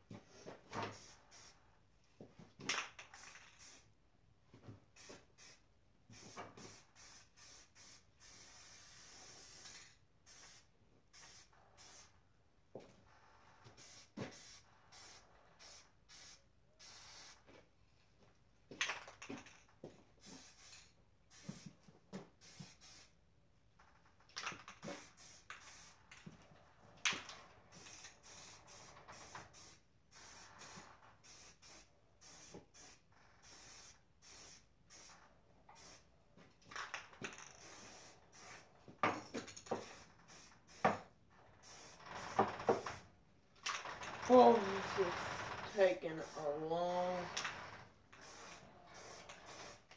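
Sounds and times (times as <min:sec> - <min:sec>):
spray paint can hissing: 0:00.9 - 0:01.6, 0:02.8 - 0:03.9, 0:05.0 - 0:12.1, 0:13.8 - 0:17.4, 0:20.2 - 0:21.8, 0:22.4 - 0:23.1, 0:24.5 - 0:26.2, 0:27.1 - 0:36.0, 0:36.9 - 0:38.6, 0:39.4 - 0:41.0, 0:41.6 - 0:42.9, 0:43.6 - 0:46.6, 0:48.2 - 0:49.9.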